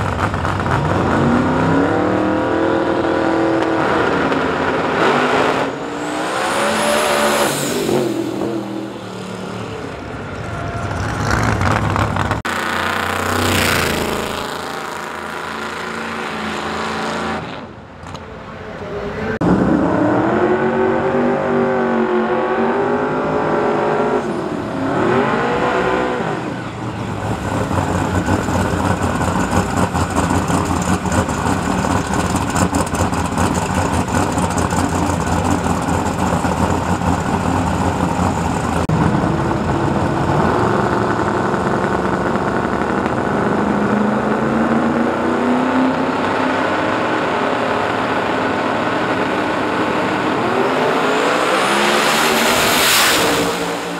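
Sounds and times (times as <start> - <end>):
race car engines revving: 0.0 - 53.9.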